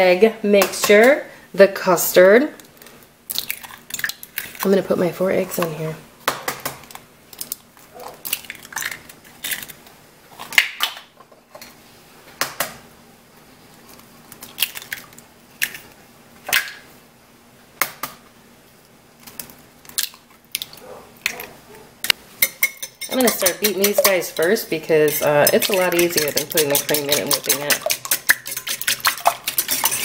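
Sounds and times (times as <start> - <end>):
eggshells cracking against bowl: 3.3 - 4.7, 7.4 - 9.8, 14.4 - 15.8, 23.0 - 30.0.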